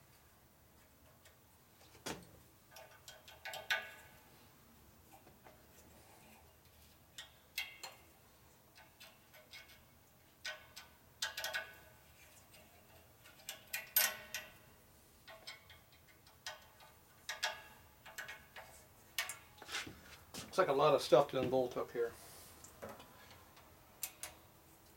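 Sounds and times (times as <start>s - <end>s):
wrench clicking and clinking on metal: 2.7s - 4.2s, 7.1s - 8.1s, 8.7s - 19.5s, 22.9s - 24.5s.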